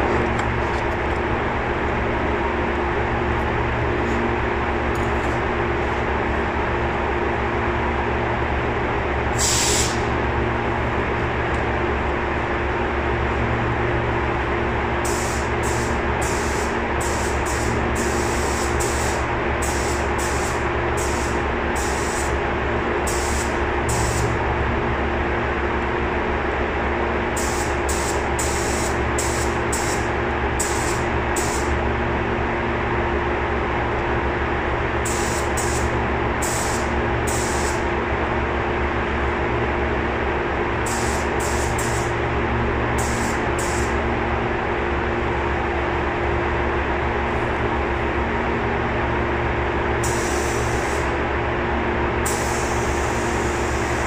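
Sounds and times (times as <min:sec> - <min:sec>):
low machine hum: 0:00.0 - 0:54.0
spray gun hissing: 0:40.9 - 0:42.1, 0:52.3 - 0:54.0.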